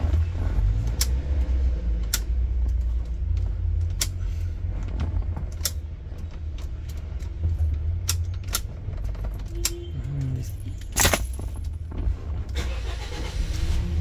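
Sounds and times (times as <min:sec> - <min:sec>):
car engine idling: 0:00.0 - 0:14.0
ignition key clicks: 0:02.0 - 0:04.2
keys jingling: 0:09.2 - 0:11.8.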